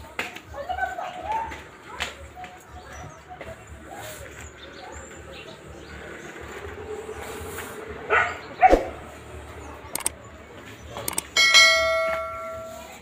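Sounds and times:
sharp clicks: 9.9s - 10.2s, 11.0s - 11.4s
metal object ringing: 11.3s - 13.0s.

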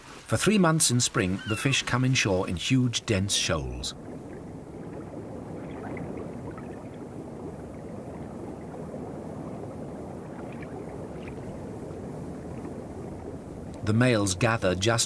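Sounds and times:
muffled underwater rush: 0.4s - 15.0s
faint underwater clicks: 3.8s - 13.9s.

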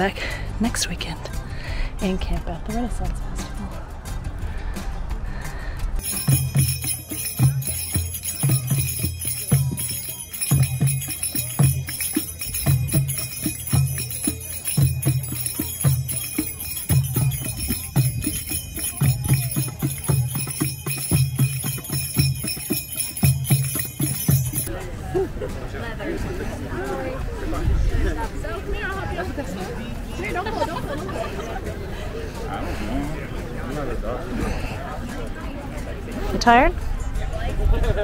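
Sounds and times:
hand drumming: 6.0s - 24.7s
metal jingles: 6.0s - 24.7s.

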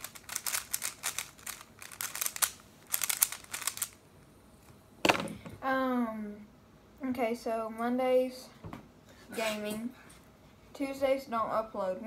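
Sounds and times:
puzzle cube clicking turns: 0.0s - 4.0s.

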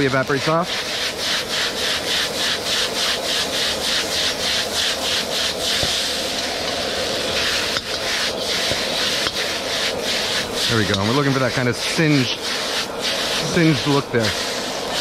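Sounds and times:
noodles sizzling in wok: 0.0s - 15.0s
wok burner rushing: 0.0s - 15.0s
wok tossing strokes: 0.0s - 15.0s.

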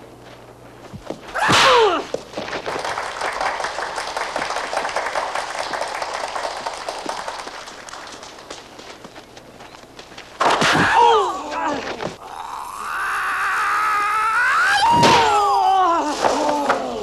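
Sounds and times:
crackling clatter: 2.2s - 10.5s.

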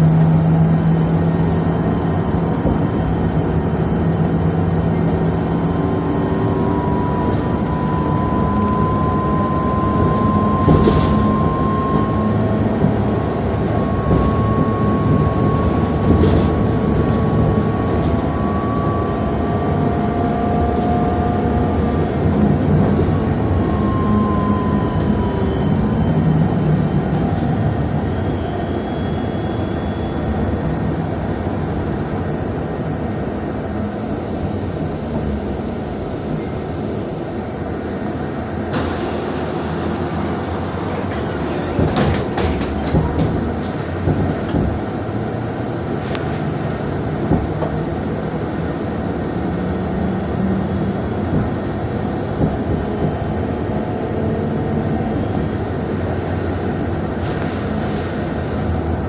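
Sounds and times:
trolleybus running noise: 0.0s - 59.0s
falling whine: 5.2s - 21.7s
air hiss: 38.7s - 41.1s
body rattles and knocks: 41.2s - 45.2s, 51.2s - 53.6s.

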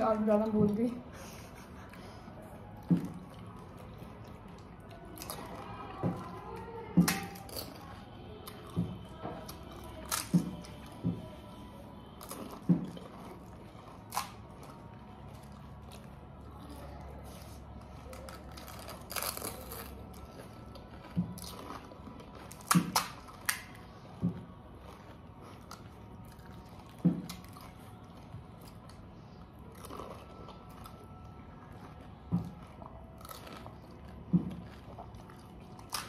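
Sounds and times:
crunching chewing: 0.4s - 36.0s
crisp shells cracking: 18.1s - 20.0s.

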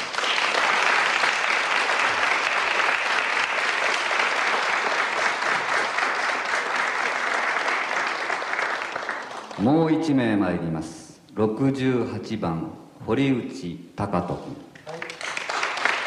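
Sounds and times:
crowd applauding: 0.0s - 9.8s, 14.8s - 16.0s.

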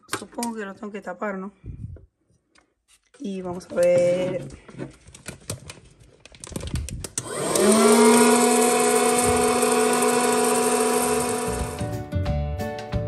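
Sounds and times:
popcorn maker fan humming: 7.2s - 12.0s.

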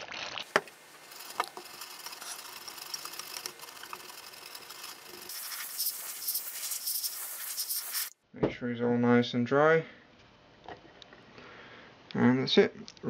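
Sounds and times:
brush scrubbing circuit board: 0.5s - 8.1s.

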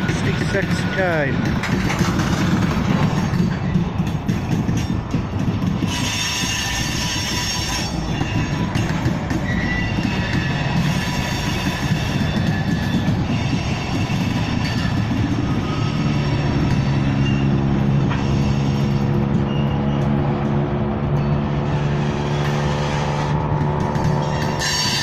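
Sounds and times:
train wheels rumbling on rails: 0.0s - 25.0s
wheels clacking over rail joints: 0.0s - 25.0s
high wheel squeals: 5.8s - 25.0s.

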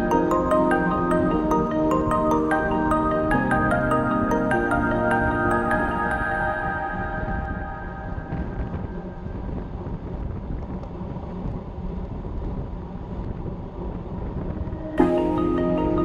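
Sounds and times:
music with mallet percussion: 0.0s - 8.4s, 15.0s - 16.0s
background music: 0.0s - 9.5s, 14.8s - 16.0s
road noise: 0.0s - 16.0s
wind rushing over microphone: 0.0s - 16.0s.

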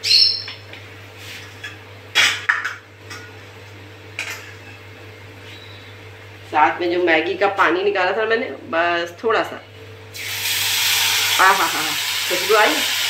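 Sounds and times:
dishes and utensils clinking: 4.2s - 4.8s.

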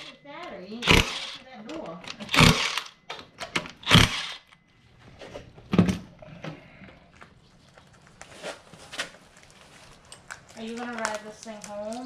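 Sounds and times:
impact wrench bursts: 0.8s - 3.0s, 3.6s - 4.6s.

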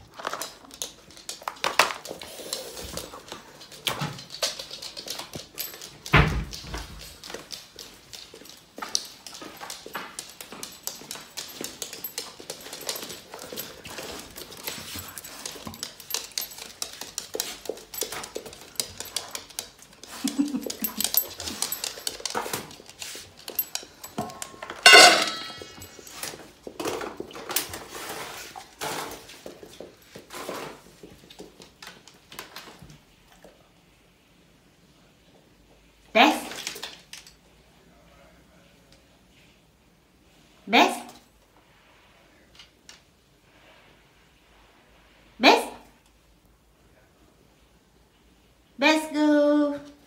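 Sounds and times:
dog claws on wooden floor: 0.0s - 33.6s.

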